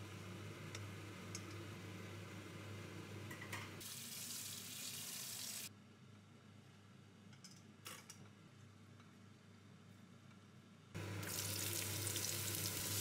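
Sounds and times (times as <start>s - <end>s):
spinach sizzling in a frying pan: 11.0s - 13.0s.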